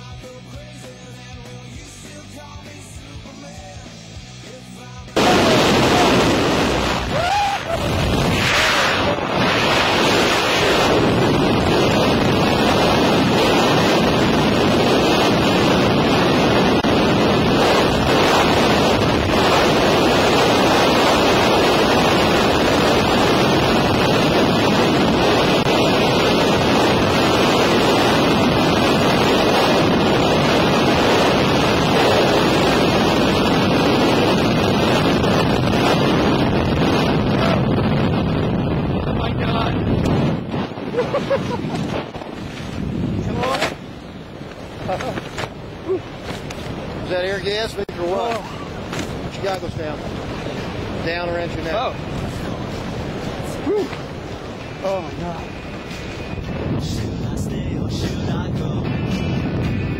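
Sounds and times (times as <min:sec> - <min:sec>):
freefall wind blasting microphone: 0:03.0 - 0:59.9.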